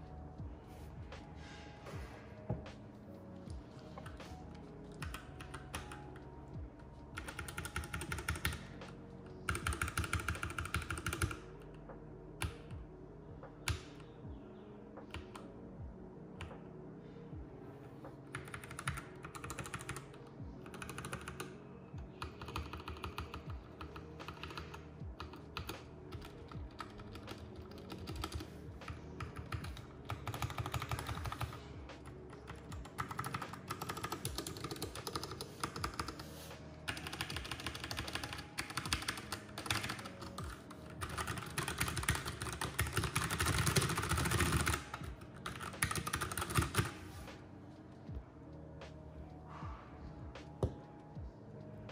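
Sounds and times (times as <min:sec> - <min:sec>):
mechanical keyboard typing: 0:04.9 - 0:06.2, 0:07.1 - 0:08.8, 0:09.5 - 0:11.5, 0:18.3 - 0:21.5, 0:22.2 - 0:31.6, 0:32.4 - 0:47.0.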